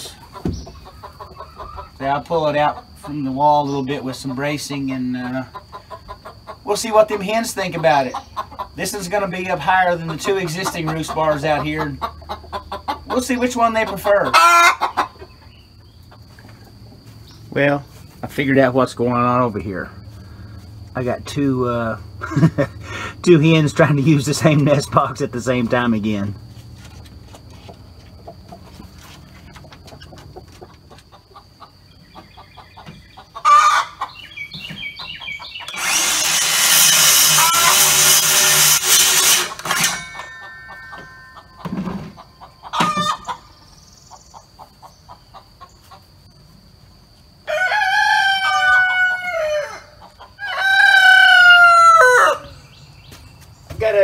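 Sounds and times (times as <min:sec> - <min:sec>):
chicken calls: 0:00.0 - 0:21.1, 0:26.8 - 0:53.9
circular saw cutting wood: 0:35.6 - 0:40.3
rooster crowing: 0:47.4 - 0:52.7.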